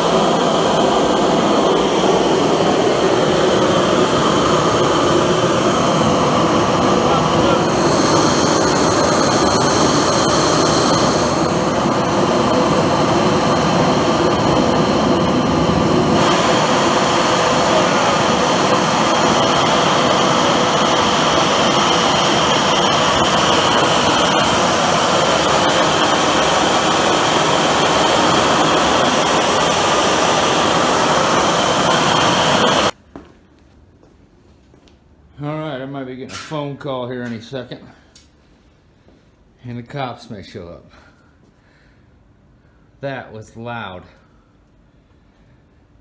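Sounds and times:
gas forge burner roaring: 0:00.0 - 0:33.0.

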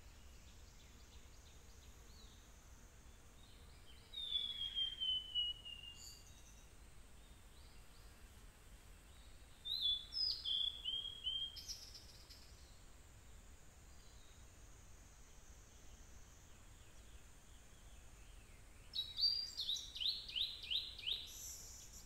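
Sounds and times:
bird whistling song: 0:04.1 - 0:06.5, 0:09.6 - 0:12.5, 0:18.9 - 0:22.0.

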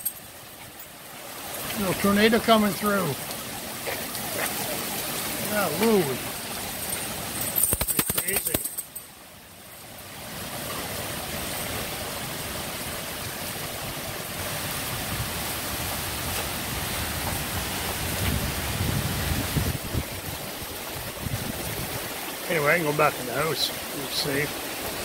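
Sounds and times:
heavy rain pouring: 0:00.0 - 0:25.0
wind gusts buffeting microphone: 0:10.9 - 0:22.4.

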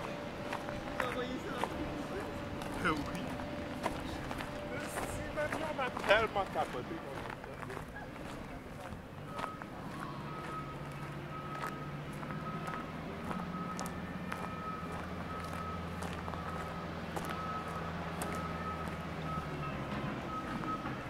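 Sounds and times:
vehicle engine droning: 0:00.0 - 0:21.0
reversing alarm beeping: 0:09.2 - 0:21.0.

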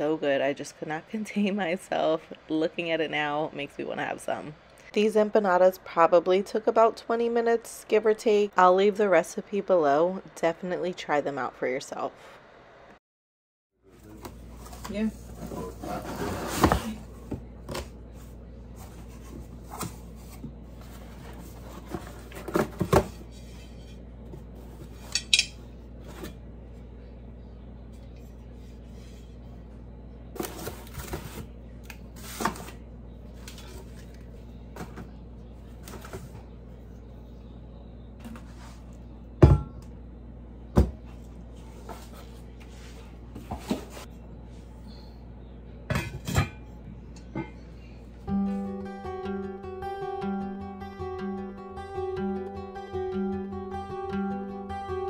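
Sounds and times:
cast iron pot knocks and clinks: 0:25.1 - 0:25.6.

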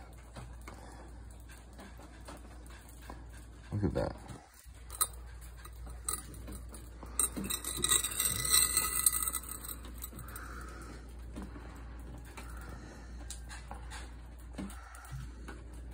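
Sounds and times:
glass jar clinking and scraping: 0:04.8 - 0:10.6.

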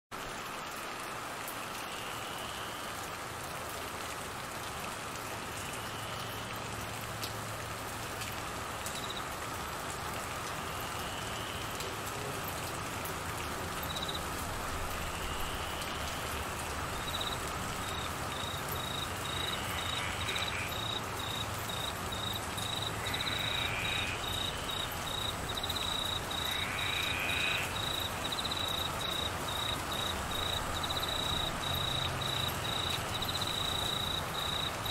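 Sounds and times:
heavy rain on trees and grass: 0:00.1 - 0:34.9
cricket chirping: 0:08.9 - 0:09.2, 0:13.8 - 0:14.2, 0:15.0 - 0:34.9.

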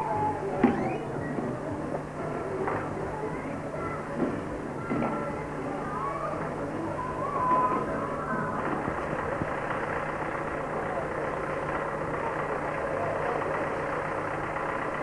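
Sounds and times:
engine running: 0:08.0 - 0:15.0.

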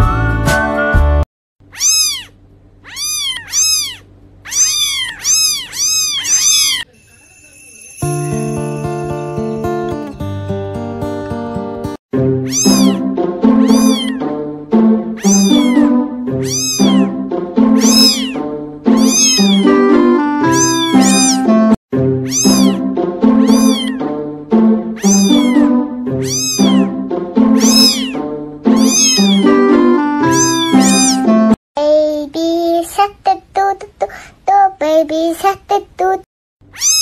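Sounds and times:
cat meows in music: 0:01.7 - 0:02.3, 0:12.2 - 0:14.4, 0:15.1 - 0:31.6, 0:36.7 - 0:37.0
simple tune: 0:06.9 - 0:10.8, 0:12.2 - 0:31.6.

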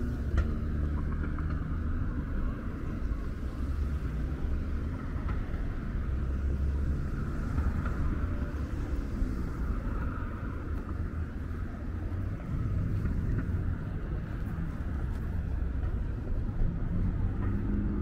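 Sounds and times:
passing vehicles rumble: 0:00.0 - 0:18.0.

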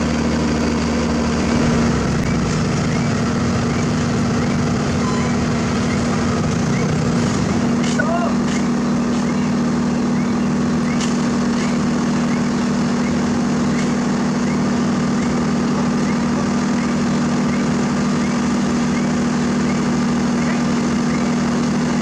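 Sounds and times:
diesel engines running: 0:00.0 - 0:22.0.

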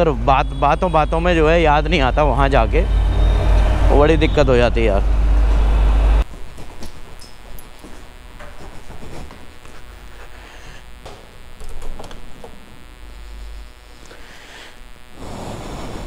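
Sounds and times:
steady low hum: 0:00.0 - 0:16.0
footsteps on stairs: 0:06.3 - 0:09.9.

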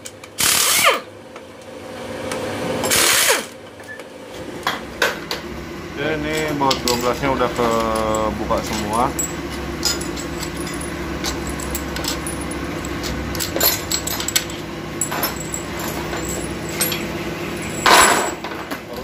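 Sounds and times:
steady low hum: 0:01.0 - 0:19.0
metal bolts clinking: 0:06.3 - 0:19.0.

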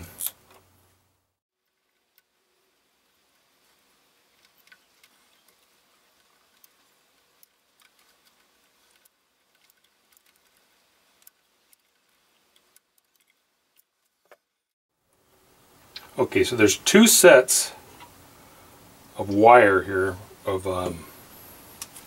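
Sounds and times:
wires being handled: 0:03.1 - 0:14.4.

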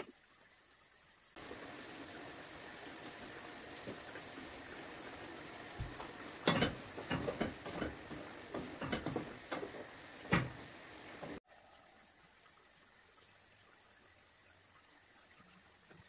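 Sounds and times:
chicken livers sizzling in frying pan: 0:01.3 - 0:11.4.

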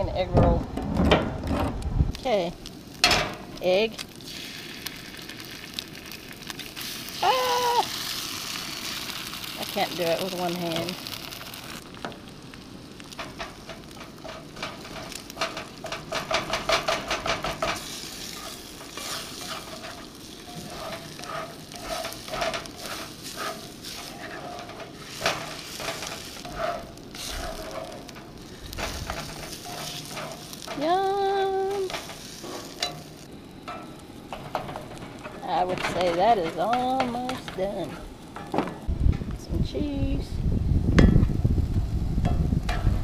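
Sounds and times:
eggs and meat sizzling in skillet: 0:02.2 - 0:38.9
spatula scraping skillet: 0:13.0 - 0:38.5.

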